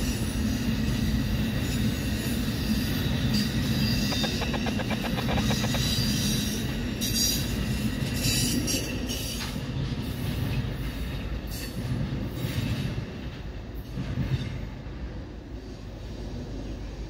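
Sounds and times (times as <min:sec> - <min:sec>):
train wheels rumbling: 0:00.0 - 0:17.0
wheel squeals: 0:02.6 - 0:07.6.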